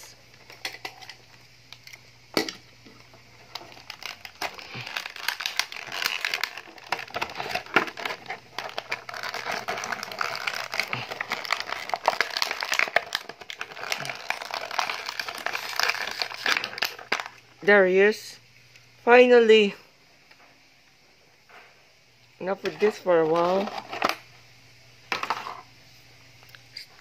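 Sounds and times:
plastic packaging crinkling: 0:00.0 - 0:17.6, 0:22.6 - 0:24.3.

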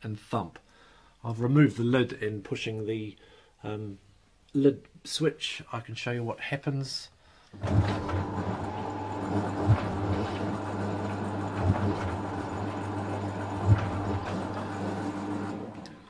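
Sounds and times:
washing machine thumping: 0:07.6 - 0:15.6
washing machine motor hum: 0:07.6 - 0:16.0.

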